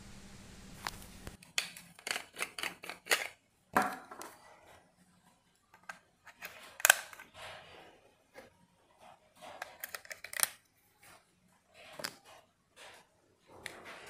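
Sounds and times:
low steady hum: 0:00.0 - 0:01.4.

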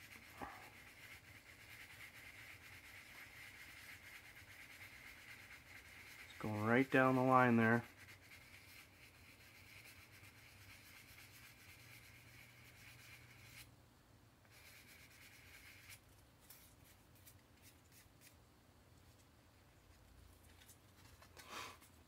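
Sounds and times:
sanding stick rubbing plastic: 0:00.0 - 0:13.7, 0:14.5 - 0:16.0.

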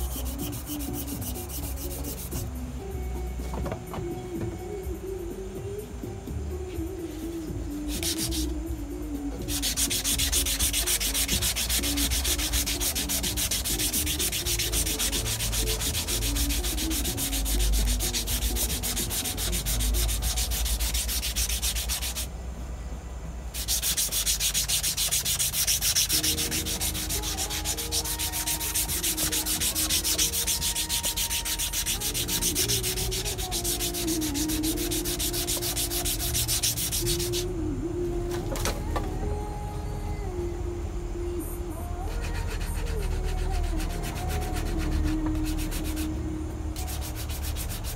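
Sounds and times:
sanding wood by hand: 0:00.0 - 0:02.5, 0:07.9 - 0:08.5, 0:09.4 - 0:22.3, 0:23.5 - 0:37.5, 0:42.2 - 0:46.1, 0:46.8 - 0:47.9.

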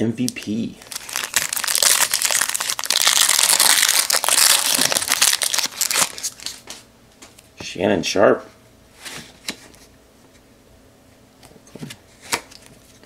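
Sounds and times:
foil wrapper tearing and crinkling: 0:00.3 - 0:06.6.

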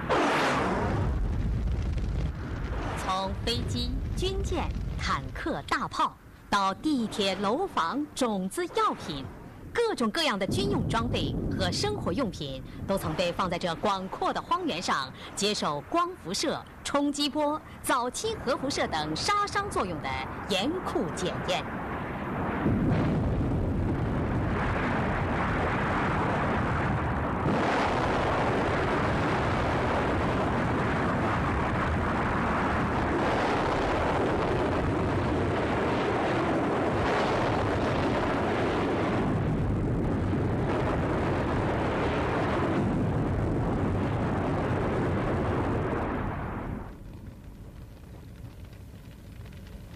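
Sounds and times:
explosion rumbling roar: 0:00.0 - 0:05.7, 0:21.8 - 0:48.7.

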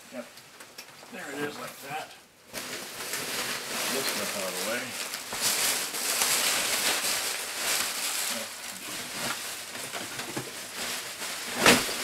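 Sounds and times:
bubble wrap crinkling: 0:02.4 - 0:12.0.

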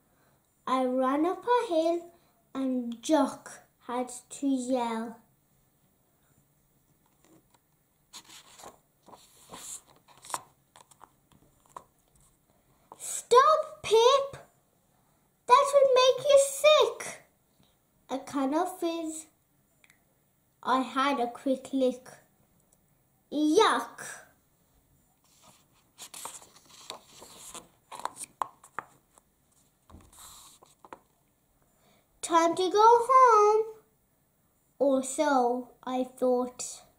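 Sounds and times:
book pages rustling: 0:07.0 - 0:13.0, 0:25.2 - 0:31.2
sharp paper crackle: 0:08.2 - 0:11.8, 0:25.3 - 0:29.0.

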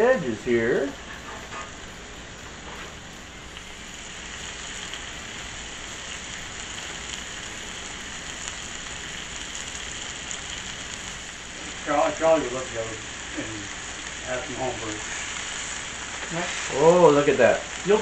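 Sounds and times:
fat spattering crackles: 0:00.0 - 0:18.0
food sizzling on a griddle: 0:00.0 - 0:18.0.

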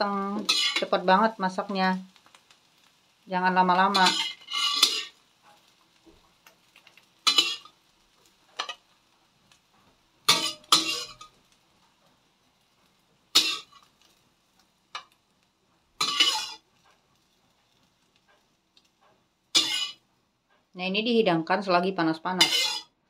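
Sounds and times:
utensil clattering on metal pan: 0:00.4 - 0:01.0, 0:03.9 - 0:05.6, 0:06.8 - 0:07.8, 0:08.5 - 0:08.9, 0:10.3 - 0:11.4, 0:13.4 - 0:13.9, 0:16.0 - 0:16.6, 0:19.5 - 0:20.0, 0:22.4 - 0:22.9.

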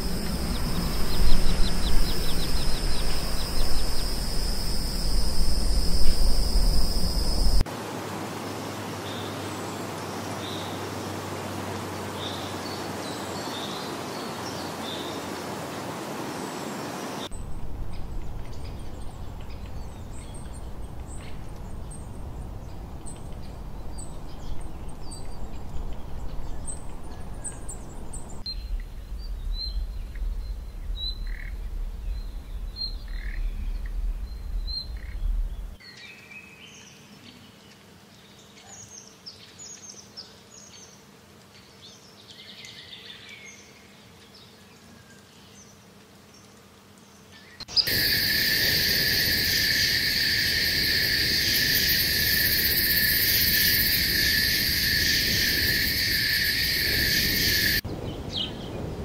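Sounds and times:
small birds chirping: 0:00.0 - 0:07.6
low wind-like rumble: 0:00.0 - 0:07.7, 0:17.3 - 0:35.8, 0:47.9 - 0:59.0
insect drone: 0:00.0 - 0:35.8, 0:47.4 - 0:59.0.

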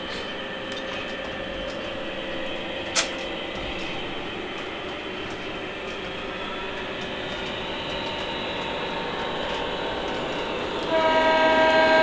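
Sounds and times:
model train running on track: 0:00.0 - 0:12.0
sharp click: 0:02.9 - 0:03.3.

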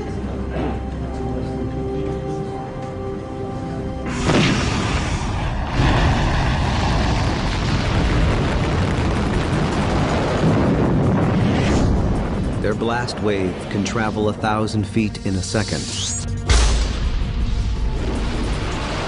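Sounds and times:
explosion boom: 0:04.1 - 0:13.0
heavy rumble of blast: 0:04.1 - 0:13.8.

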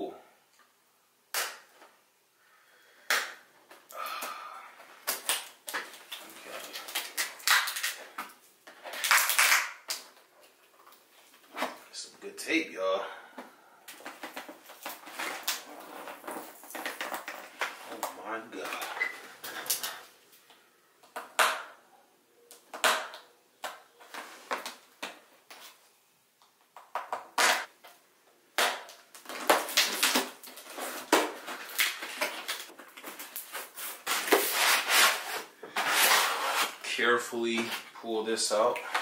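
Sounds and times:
tool scraping packing tape: 0:29.7 - 0:36.9
cardboard rubbing and scraping: 0:33.6 - 0:36.8.

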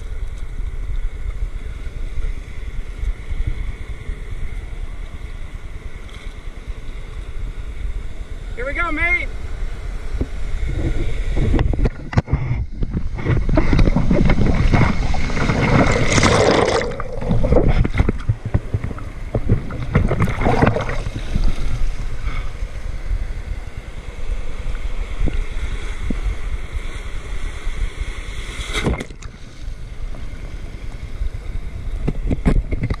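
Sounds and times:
low rumble of water: 0:00.0 - 0:33.0
surf splashing: 0:08.4 - 0:33.0.

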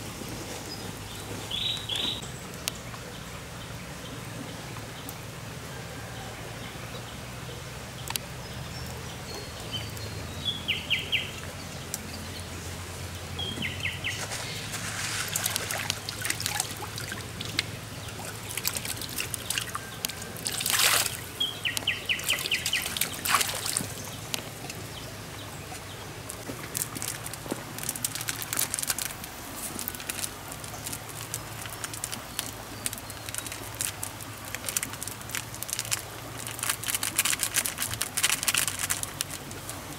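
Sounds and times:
water pouring and splashing: 0:12.9 - 0:39.9.

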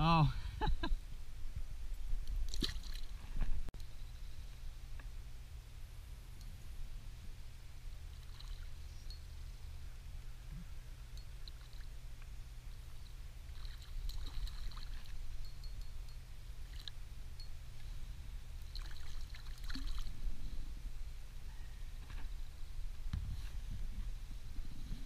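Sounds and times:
steady low rumble: 0:00.0 - 0:25.0
water splashing: 0:02.4 - 0:03.4, 0:08.1 - 0:08.8, 0:13.5 - 0:15.2, 0:16.6 - 0:17.0, 0:18.6 - 0:20.2.

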